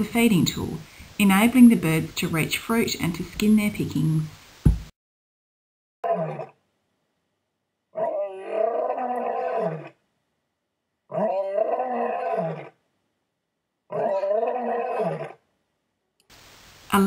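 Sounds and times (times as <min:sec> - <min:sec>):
lion roaring: 0:06.0 - 0:06.6, 0:08.0 - 0:10.0, 0:11.1 - 0:12.8, 0:13.9 - 0:15.4.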